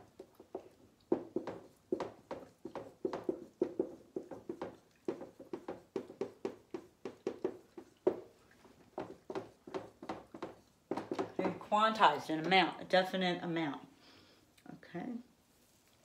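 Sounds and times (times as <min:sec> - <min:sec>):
writing strokes tapping: 0:00.0 - 0:11.7.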